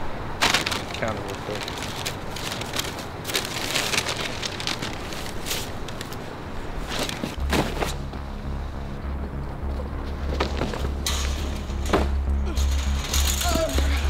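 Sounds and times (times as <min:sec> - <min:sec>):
paper bag crinkling: 0:00.4 - 0:08.0
banknotes rustling: 0:00.4 - 0:08.1
low steady drone: 0:06.3 - 0:14.0.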